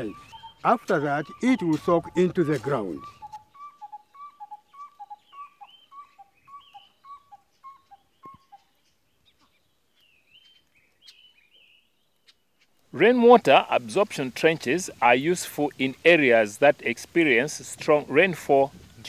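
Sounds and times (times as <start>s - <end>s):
faint bird chirps: 0.0s - 12.7s.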